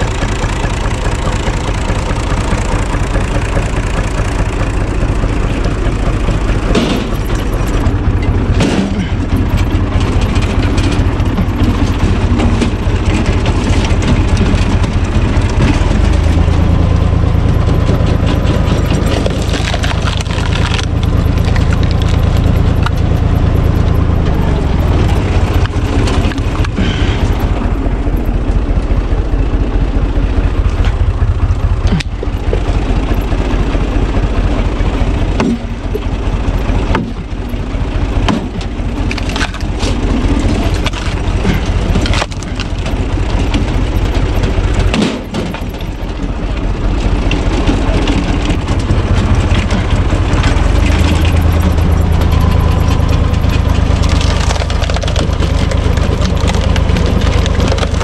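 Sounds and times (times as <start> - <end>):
tractor diesel engine running: 0.0 - 58.0
wood cracking as logs split: 8.5 - 23.3, 24.7 - 27.7, 38.2 - 46.3, 47.0 - 58.0.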